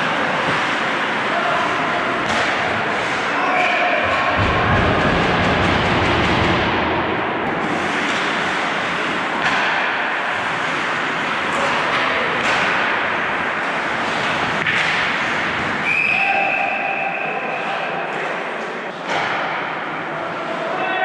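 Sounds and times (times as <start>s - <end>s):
skates and sticks on ice: 0.0s - 6.8s, 7.5s - 15.9s
hockey stick and puck knocks: 2.2s - 3.2s, 9.4s - 10.0s, 14.1s - 15.7s
referee's whistle: 15.8s - 17.4s.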